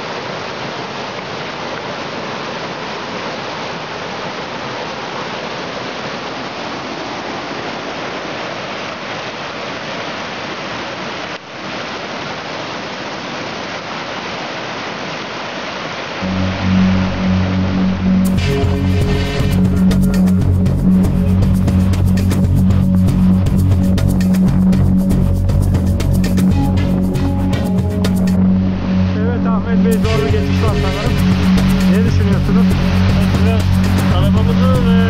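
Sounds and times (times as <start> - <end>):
stream rushing over waterfall: 0.0 - 20.4, 21.0 - 35.0
music: 16.2 - 35.0.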